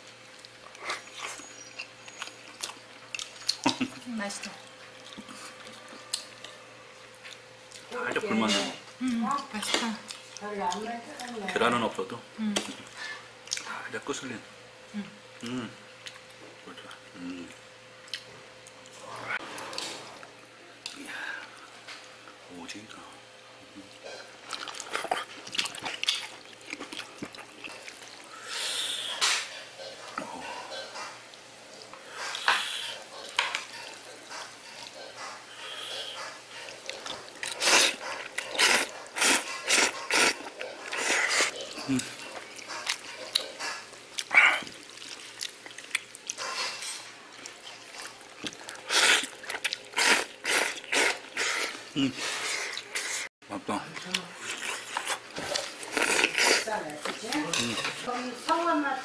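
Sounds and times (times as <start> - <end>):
person slurping noodles: 37.5 - 42.2.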